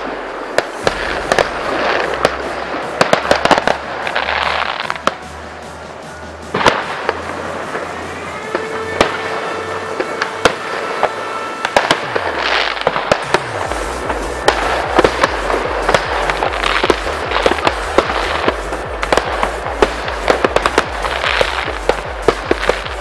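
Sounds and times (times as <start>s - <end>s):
fireworks bangs and crackles: 0.0s - 23.0s
electronic dance music: 0.7s - 23.0s.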